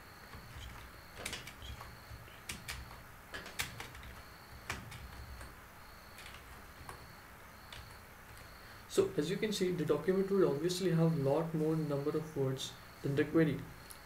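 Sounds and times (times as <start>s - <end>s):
keyboard keys clicking: 0.3s - 5.5s, 6.2s - 7.1s.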